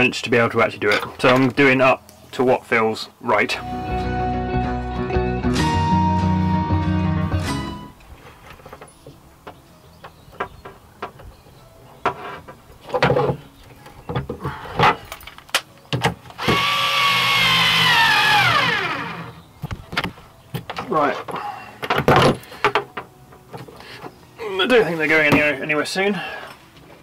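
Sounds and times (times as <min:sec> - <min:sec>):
cordless drill motor whine: 0:16.4 - 0:19.4
clicks and knocks of metal parts: 0:19.6 - 0:24.1.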